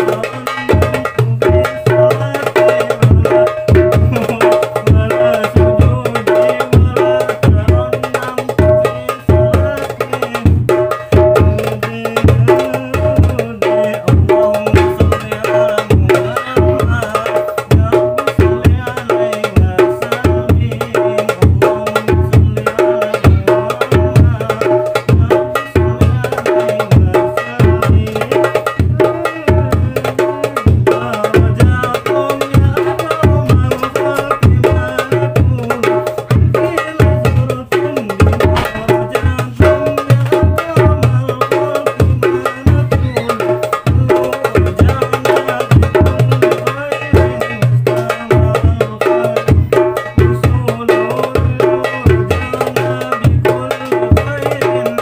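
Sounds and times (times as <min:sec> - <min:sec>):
hand drums in fast rhythm: 0:00.0 - 0:55.0
deep bass drum thumps: 0:00.7 - 0:09.8, 0:10.4 - 0:30.0, 0:30.7 - 0:45.0.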